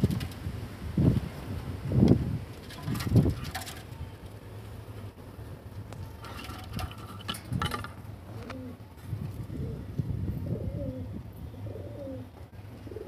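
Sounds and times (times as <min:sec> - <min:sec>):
pigeon cooing: 0:08.3 - 0:08.8, 0:09.5 - 0:13.0.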